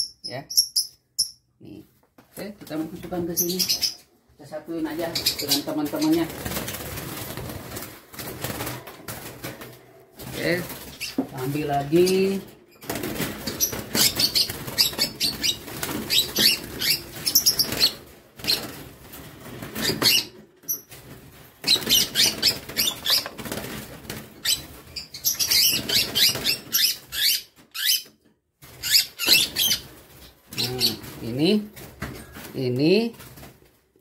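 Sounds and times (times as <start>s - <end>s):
birds flapping wings against cage: 5.7s - 26.9s, 28.6s - 33.8s.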